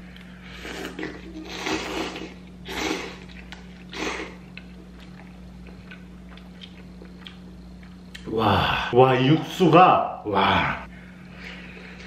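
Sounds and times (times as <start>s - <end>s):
person slurping noodles: 0.5s - 4.4s.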